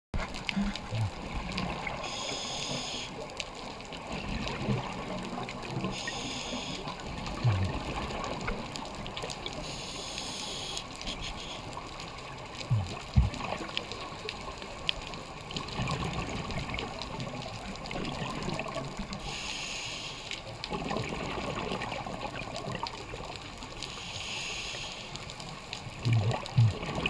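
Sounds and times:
rush of bubbles and water: 0.2s - 27.0s
scuba regulator hissing in-breaths: 2.0s - 3.2s, 6.0s - 6.9s, 9.6s - 11.7s, 19.2s - 20.4s, 23.9s - 25.2s
low bubbly exhale thumps: 12.6s - 13.7s.

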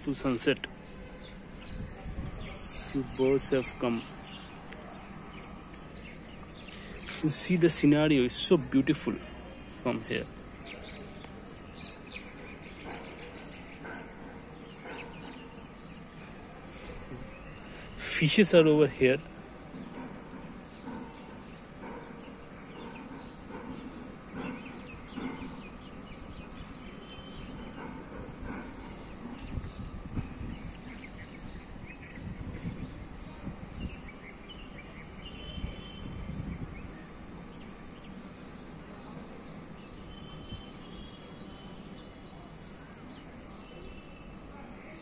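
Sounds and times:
birds chirping and calling: 0.0s - 45.0s
steady background noise: 0.0s - 45.0s
low rumble on the microphone: 0.7s - 7.2s, 22.8s - 37.9s.

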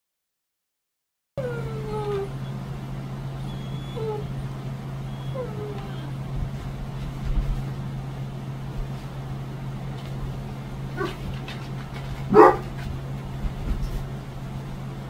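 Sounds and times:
dog barking: 11.0s - 11.2s, 12.3s - 12.8s.

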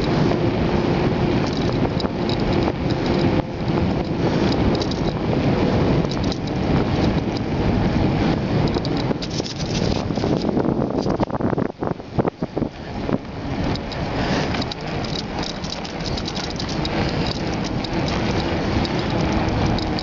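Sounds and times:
bicycle tyre noise on asphalt: 0.0s - 20.0s
wind buffeting microphone: 0.0s - 20.0s
small rattling clicks: 1.4s - 5.2s, 6.0s - 7.6s, 8.6s - 11.4s, 12.4s - 20.0s.

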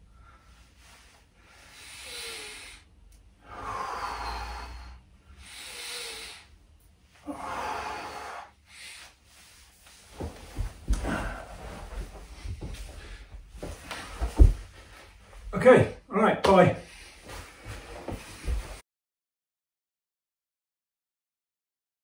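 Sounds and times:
man breathing deeply: 0.0s - 15.2s
body knocking on floor: 13.6s - 14.8s.

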